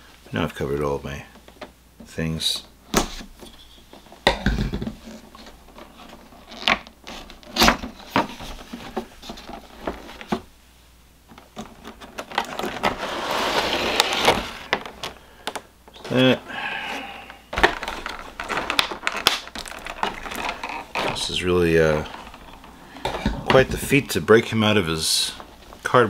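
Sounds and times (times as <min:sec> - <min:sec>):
plastic bag crinkling: 0:17.5 - 0:23.6.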